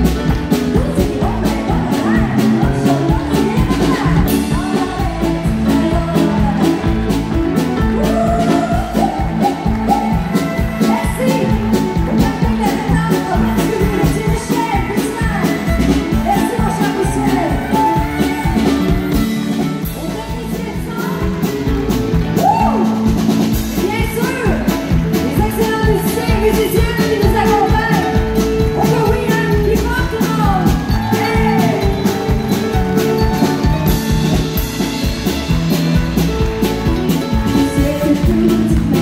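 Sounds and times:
drums keeping a steady beat: 0:00.0 - 0:39.0
electric guitar: 0:00.0 - 0:39.0
woman singing into a microphone: 0:00.6 - 0:07.1, 0:07.8 - 0:18.8, 0:25.2 - 0:28.2, 0:37.5 - 0:39.0.

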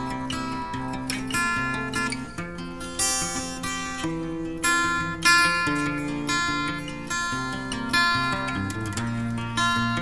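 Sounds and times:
acoustic guitar picking and strumming: 0:00.0 - 0:10.0.

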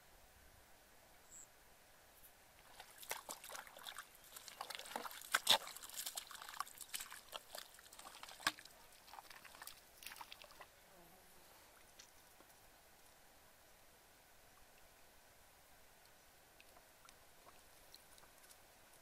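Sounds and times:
bare feet squelching in mud: 0:02.6 - 0:10.7.

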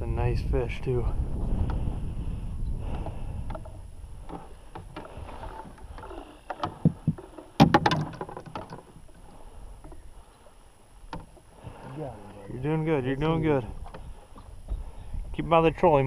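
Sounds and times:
water splashing beside a boat: 0:02.8 - 0:16.0
knocks: 0:06.5 - 0:08.8.

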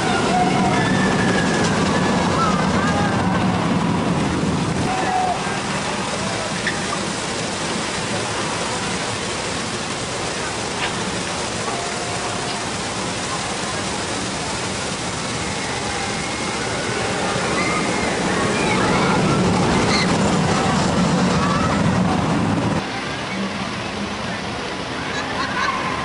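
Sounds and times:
faint voices and cries: 0:00.0 - 0:07.1, 0:15.2 - 0:26.0
roller coaster train passing: 0:00.0 - 0:26.0
waterfall rushing: 0:00.0 - 0:26.0.

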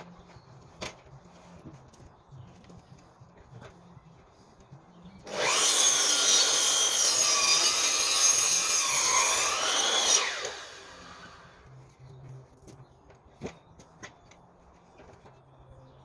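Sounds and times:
mitre saw cutting timber: 0:05.2 - 0:11.6.

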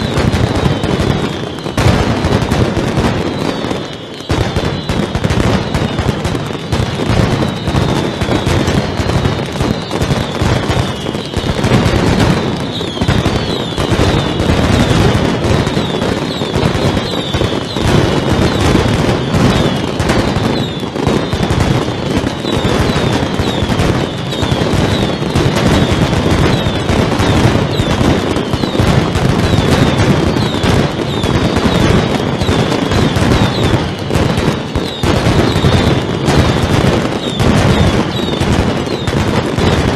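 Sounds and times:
firecrackers exploding rapidly: 0:00.0 - 0:39.9
falling whistles: 0:12.6 - 0:14.9.

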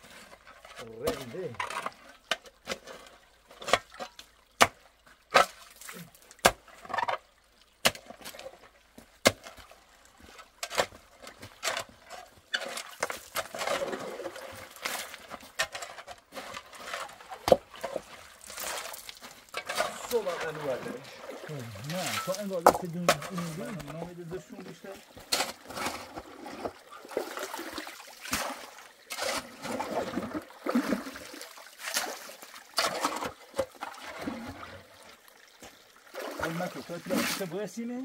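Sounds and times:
shovel scraping gravel and water: 0:00.0 - 0:38.0
shovel clanking on stones: 0:14.8 - 0:20.8, 0:21.8 - 0:24.0.

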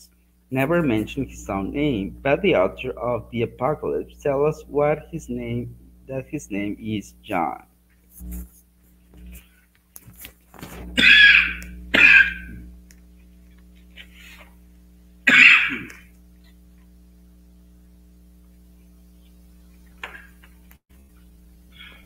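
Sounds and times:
low electrical hum: 0:00.0 - 0:22.0
person clearing throat: 0:11.0 - 0:12.6, 0:15.3 - 0:16.1.

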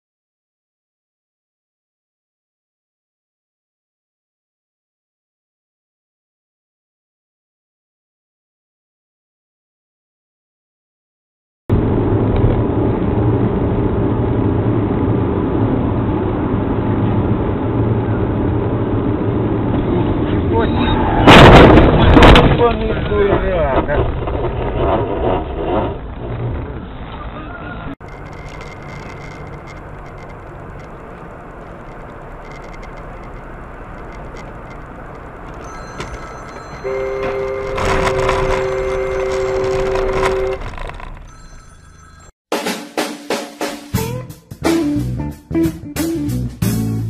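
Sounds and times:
car engine and road noise: 0:11.7 - 0:42.3
faint high tone: 0:35.6 - 0:40.7.

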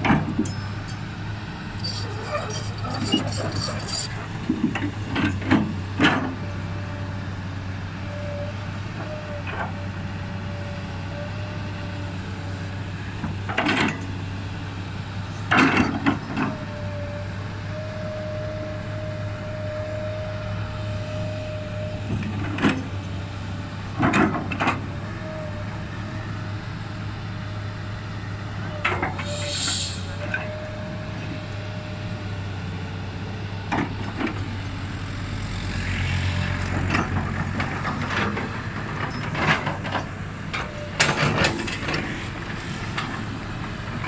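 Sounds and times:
excavator diesel engine running: 0:00.0 - 0:44.0
hydraulic whine: 0:28.6 - 0:32.3.

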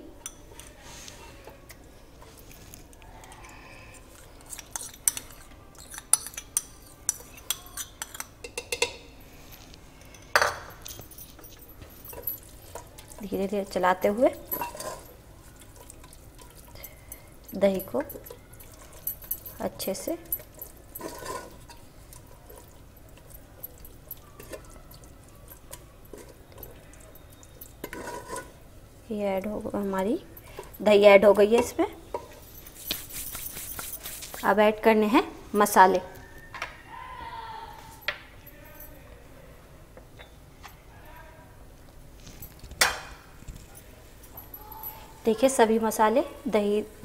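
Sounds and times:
spoon stirring wet food: 0:00.2 - 0:09.2, 0:10.0 - 0:34.8
spoon tapping pot: 0:04.8 - 0:09.1.

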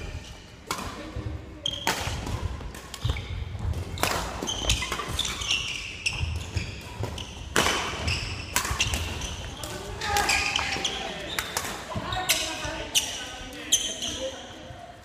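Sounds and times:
sneakers squeaking: 0:00.0 - 0:14.8
rackets striking shuttlecock: 0:00.6 - 0:12.5.

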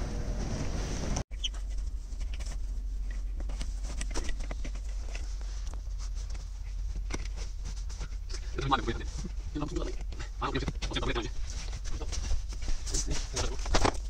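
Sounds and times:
steady low hum: 0:00.0 - 0:14.0
fabric rustling: 0:00.2 - 0:14.0.

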